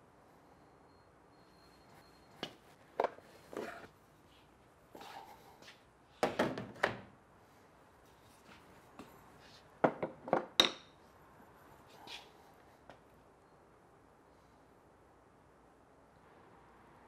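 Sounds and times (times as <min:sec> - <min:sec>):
parts knocking on metal frame: 0:09.8 - 0:10.8.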